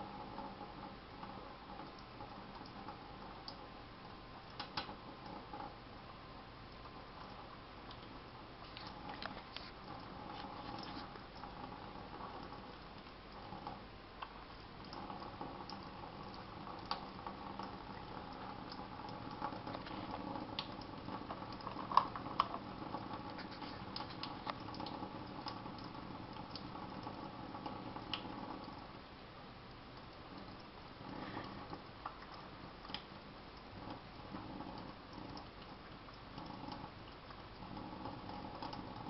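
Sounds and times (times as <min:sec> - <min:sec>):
small clicks and splashes: 0:00.2 - 0:03.7, 0:04.4 - 0:05.8, 0:06.7 - 0:28.9, 0:29.9 - 0:39.0
tap water running into sink: 0:14.8 - 0:28.8.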